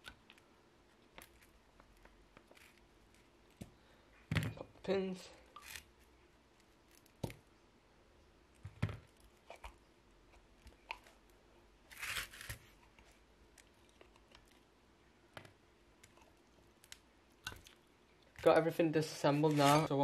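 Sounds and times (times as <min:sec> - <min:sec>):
rustling scrape: 0:11.9 - 0:12.8, 0:19.3 - 0:19.9.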